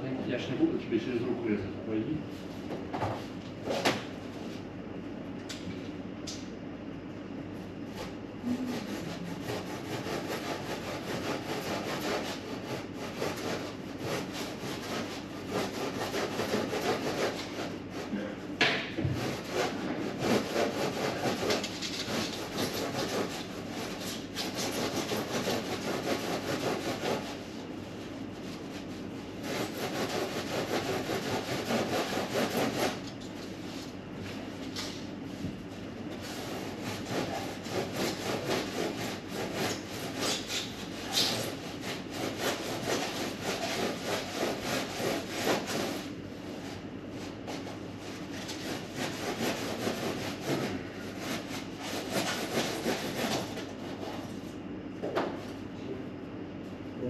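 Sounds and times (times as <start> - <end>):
hand tool scraping: 19.2 - 27.3.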